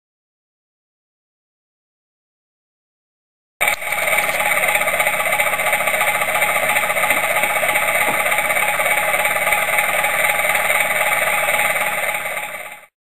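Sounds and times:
diesel engine through small loudspeaker: 3.6s - 13.0s.

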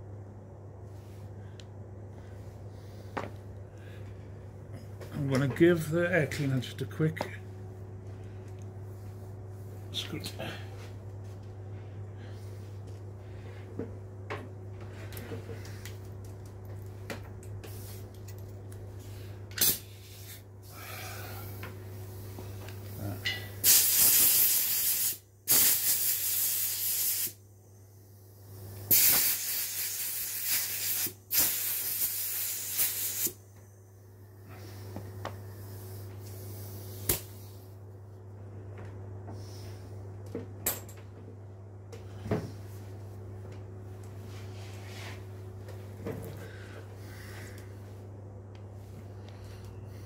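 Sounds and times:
steady low hum: 0.0s - 50.0s
compressed air hissing jets: 23.6s - 27.4s, 28.9s - 33.4s.

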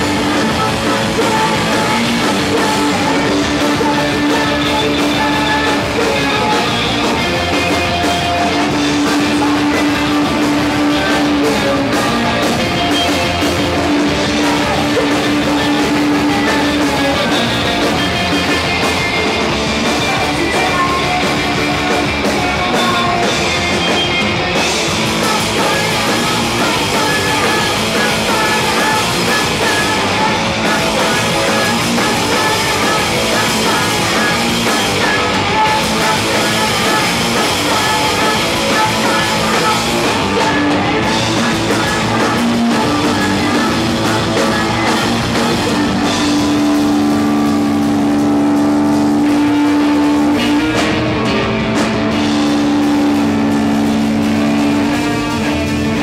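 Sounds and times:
drum kit: 0.0s - 56.0s
electric guitar: 0.0s - 56.0s
person singing: 0.0s - 56.0s.

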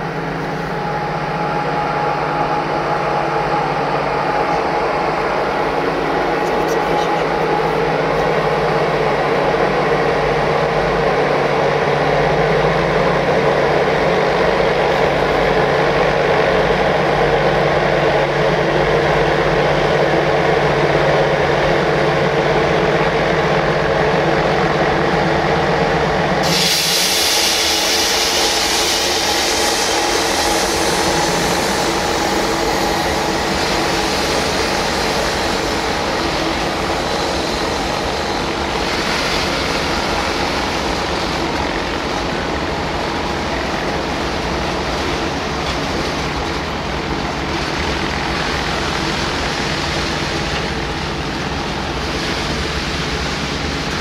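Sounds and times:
electric locomotive hum: 0.0s - 54.0s
high hiss of passing wagons: 26.4s - 41.4s.

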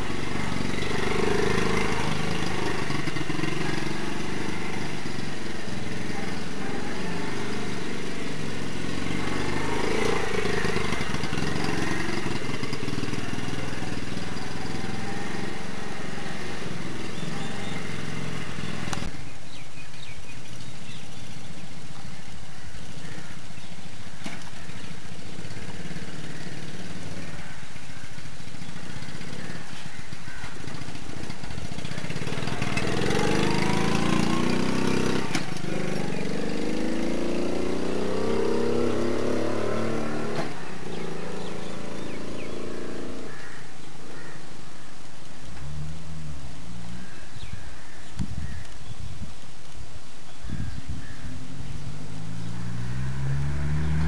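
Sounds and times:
small motorcycle engine revving: 0.0s - 19.1s, 24.3s - 44.4s, 50.4s - 54.0s.

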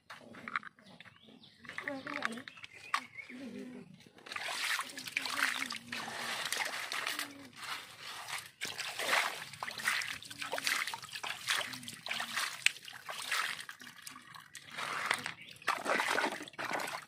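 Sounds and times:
hand splashing water: 4.3s - 17.0s
water trickling: 4.3s - 17.0s.

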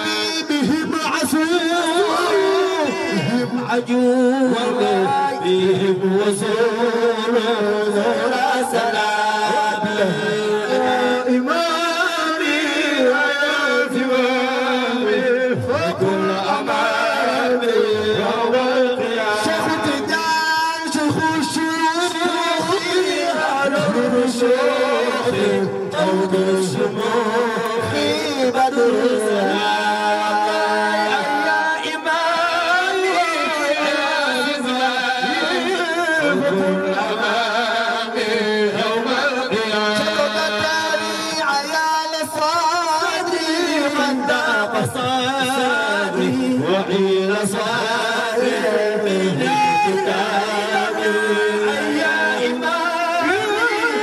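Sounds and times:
men chanting devotional song: 0.0s - 54.0s.

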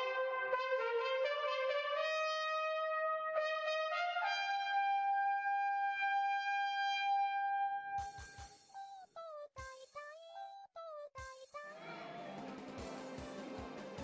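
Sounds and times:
brassy melody: 0.0s - 8.4s.

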